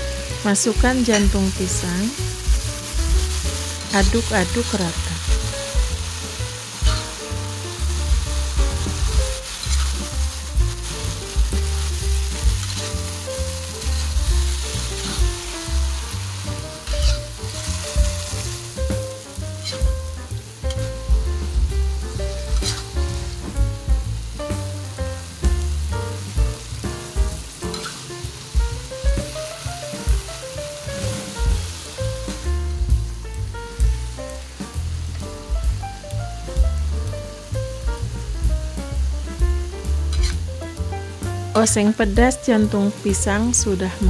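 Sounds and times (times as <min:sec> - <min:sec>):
food sizzling in a wok: 0:00.0 - 0:44.0
spatula scraping pan: 0:08.7 - 0:16.0, 0:16.6 - 0:18.5, 0:19.6 - 0:19.9, 0:22.4 - 0:23.0, 0:40.1 - 0:40.4.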